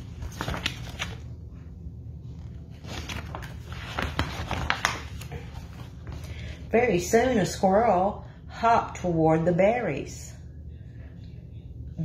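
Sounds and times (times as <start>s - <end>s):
book pages turning: 0.0s - 1.5s, 2.3s - 6.3s.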